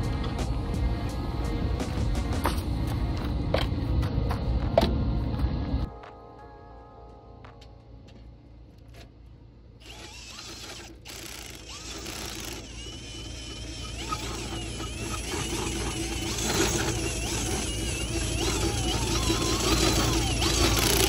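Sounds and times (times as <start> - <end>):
power drill whining: 9.8 - 21.0.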